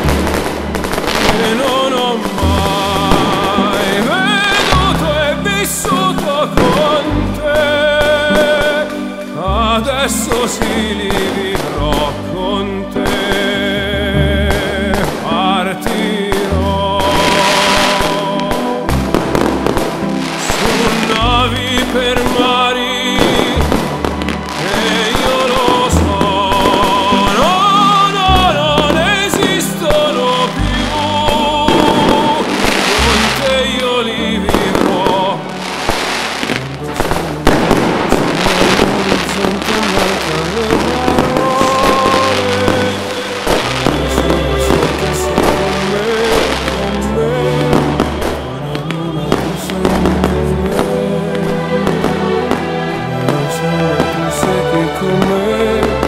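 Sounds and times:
fireworks rockets hissing: 0.0s - 9.4s, 14.6s - 33.8s, 34.5s - 47.1s
fireworks bursting and crackling: 0.0s - 56.0s
pop song with sung vocal: 1.0s - 56.0s.

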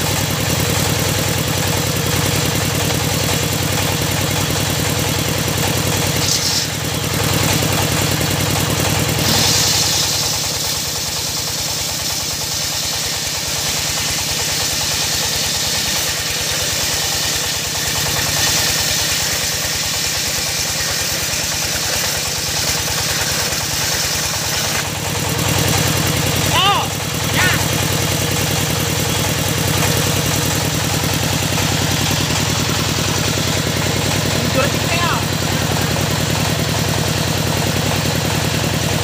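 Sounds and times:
diesel engine beating: 0.0s - 39.0s
saw blade ripping wood: 6.1s - 6.8s, 9.1s - 25.0s.

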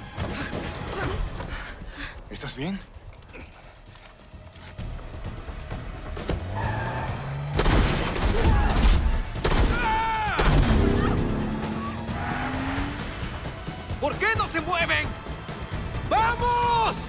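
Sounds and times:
tense film music: 0.0s - 17.0s
car engine revving: 6.1s - 7.7s, 10.5s - 13.8s.

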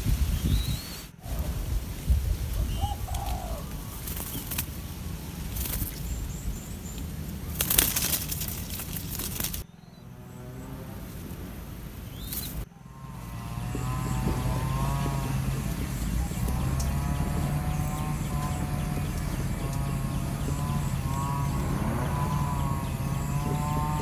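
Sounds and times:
rustling and wing flaps: 1.2s - 9.6s
low steady hum: 1.2s - 24.0s
faint bird chirps: 9.6s - 10.5s.

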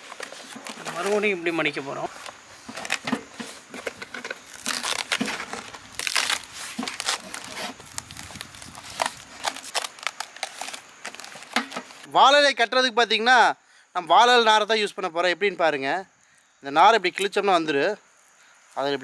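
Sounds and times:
leaf crinkling and rustling: 0.0s - 12.1s.

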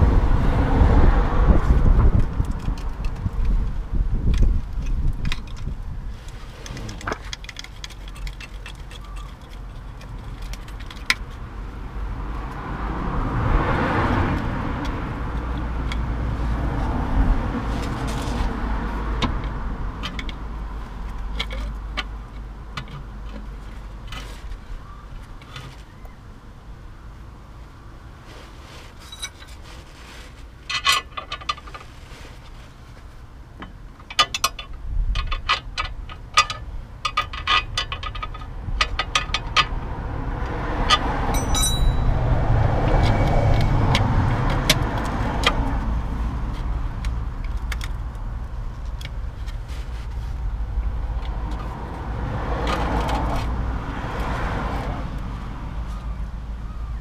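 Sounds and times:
low rumble: 0.0s - 7.2s
metallic clinks and knocks: 40.8s - 45.6s.

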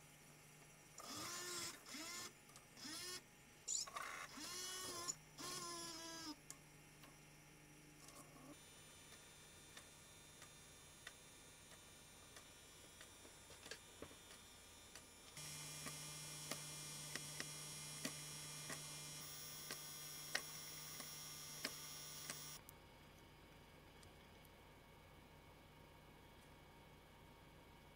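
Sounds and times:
steady hum: 6.3s - 27.9s
camcorder tape transport ticking: 9.1s - 22.6s.

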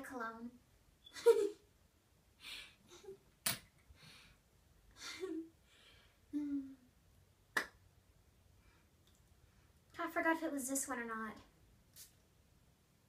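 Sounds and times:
woman humming mm: 6.3s - 6.9s.

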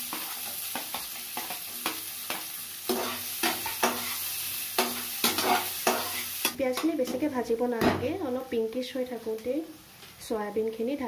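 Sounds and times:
metal spatula scraping a pan: 0.0s - 6.9s
onions sizzling in hot oil: 0.0s - 11.0s.

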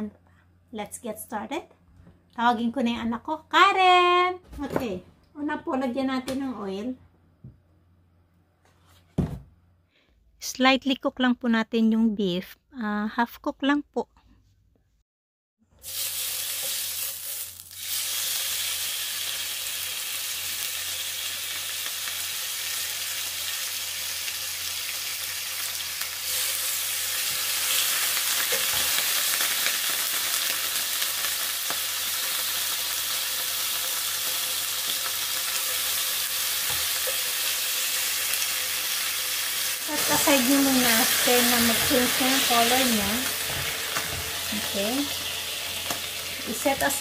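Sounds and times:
beef sizzling in a pan: 15.8s - 47.0s.

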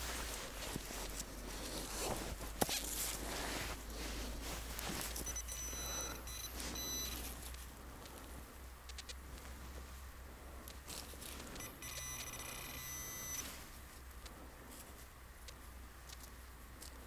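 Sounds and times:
footsteps in snow: 0.0s - 5.3s
thin high-pitched beep: 5.2s - 7.2s, 11.6s - 13.5s.

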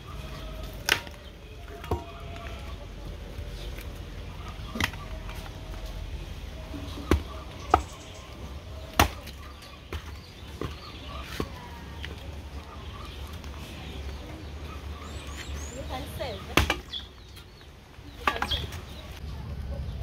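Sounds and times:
axe chopping firewood: 0.7s - 2.5s, 4.5s - 5.5s, 6.7s - 8.1s, 8.8s - 12.2s, 16.4s - 17.1s.

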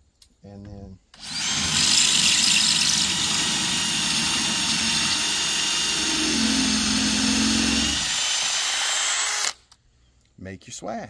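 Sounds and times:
cordless drill running under load: 1.2s - 9.6s
lower drone: 4.3s - 8.2s.

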